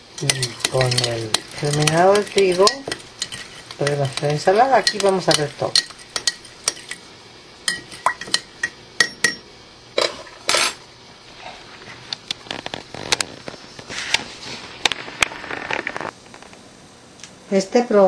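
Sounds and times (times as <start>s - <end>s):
glass jars clinking: 0.2s - 7.0s, 7.7s - 9.4s.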